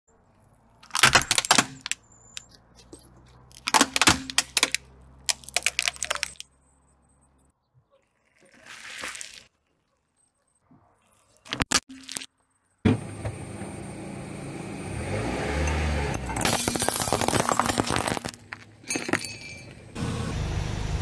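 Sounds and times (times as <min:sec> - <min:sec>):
plastic cracking and snapping: 0:00.8 - 0:02.0, 0:03.5 - 0:06.4
soft squish: 0:07.9 - 0:10.2.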